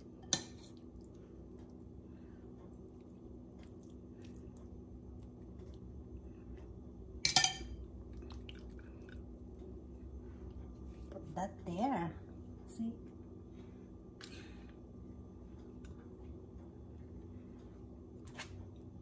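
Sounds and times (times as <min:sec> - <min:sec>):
steady low hum: 0:00.0 - 0:19.0
wet squishing of stuffing: 0:03.0 - 0:05.9, 0:08.1 - 0:09.4
metal spoon clinking on bowl: 0:07.2 - 0:07.8.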